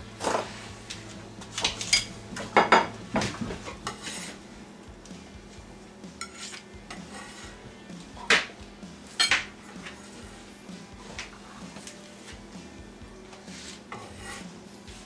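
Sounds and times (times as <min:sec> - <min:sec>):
ceramic plates clattering: 0:01.8 - 0:02.9.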